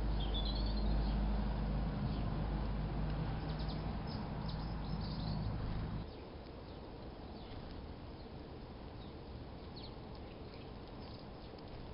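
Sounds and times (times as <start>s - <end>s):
songbirds chirping: 0.0s - 11.9s
steady low rumble: 0.0s - 11.9s.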